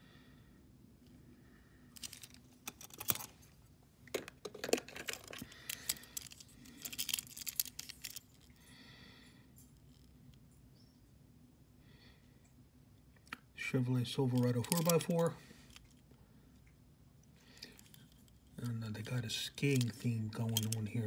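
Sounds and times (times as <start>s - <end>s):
metal toy trucks clattering: 4.1s - 8.2s, 19.6s - 20.9s.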